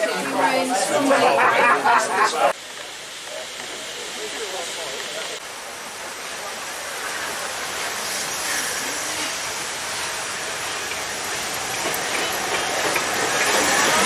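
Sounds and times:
steam locomotive rolling slowly: 0.0s - 14.0s.

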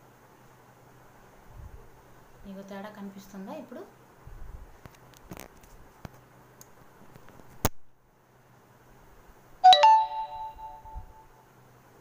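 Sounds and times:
bright chime: 9.6s - 11.3s.

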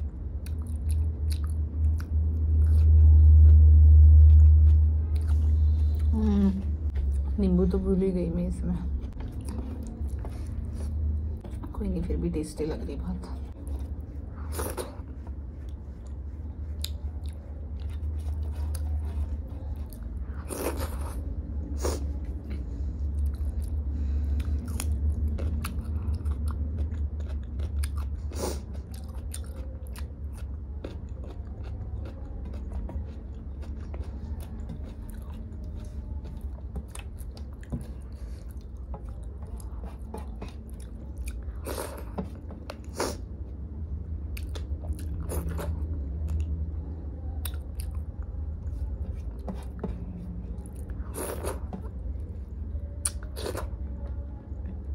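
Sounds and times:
chewing and mouth sounds: 0.0s - 7.8s, 8.8s - 11.8s, 13.2s - 54.9s
low steady hum: 0.0s - 54.9s
food crunching: 23.2s - 43.2s.

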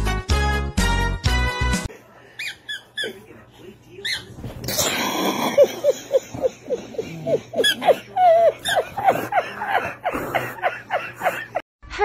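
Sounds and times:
man laughing: 5.3s - 11.6s.

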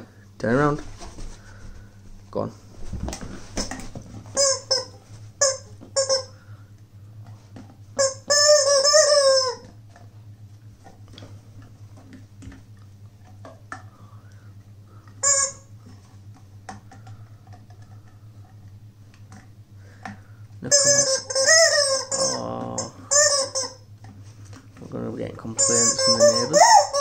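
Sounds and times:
rubber chicken toy squawking: 4.4s - 6.4s, 8.0s - 9.7s, 15.2s - 15.7s, 20.7s - 23.9s, 25.6s - 27.0s.

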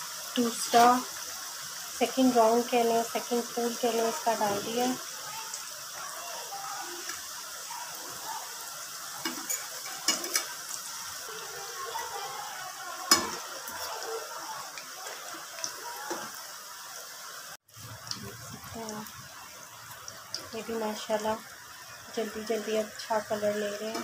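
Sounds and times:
food deep-frying in oil: 0.0s - 24.0s
metal utensil clinking on pan: 9.2s - 10.6s, 13.1s - 13.4s.

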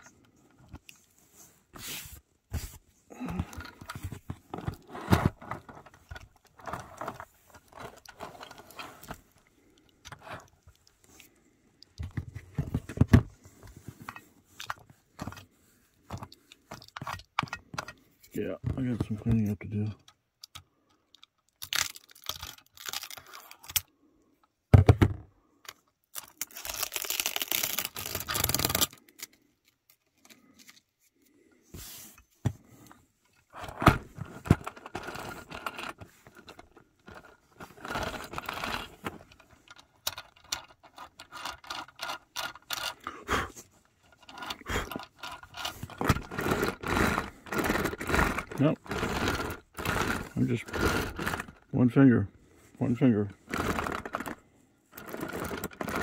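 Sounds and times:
scraping and crinkling packing: 26.2s - 29.3s, 33.5s - 43.0s, 43.6s - 51.7s, 53.4s - 56.0s.

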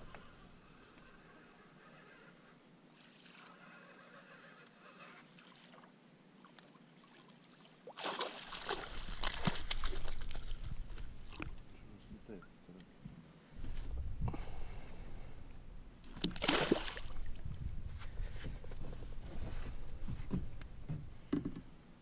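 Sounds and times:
water sloshing and splashing: 5.2s - 11.7s, 16.0s - 17.6s.

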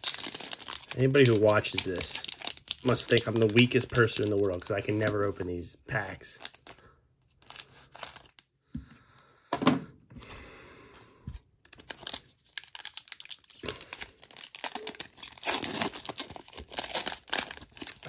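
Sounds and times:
scissors snipping wrapper: 0.0s - 5.2s, 6.4s - 8.4s
wrapper crinkling and tearing: 0.0s - 5.4s, 6.2s - 8.5s, 11.6s - 18.0s.

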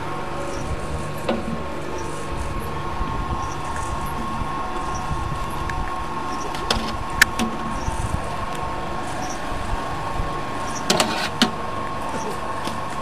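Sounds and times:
dewatering machine humming and whining: 0.0s - 13.0s
sharp clicks and knocks: 10.9s - 11.6s.

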